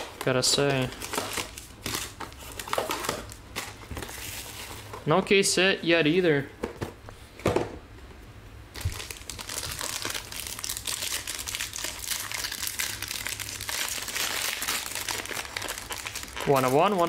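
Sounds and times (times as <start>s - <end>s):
foil wrapper crinkling and tearing: 0.0s - 5.0s, 8.7s - 17.0s.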